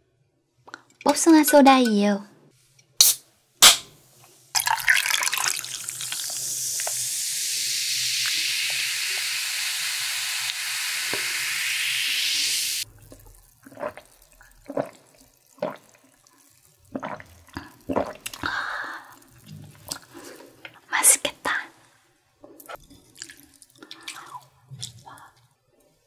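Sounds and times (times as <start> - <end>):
soda fizzing in glass with ice: 4.5 - 19.9
gulps of drinking: 13.6 - 16.0, 16.9 - 20.1.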